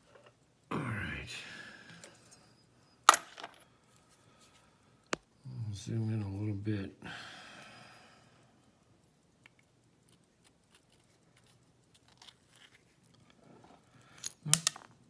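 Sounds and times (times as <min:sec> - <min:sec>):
sharp metallic clicks: 0:08.4 - 0:15.0.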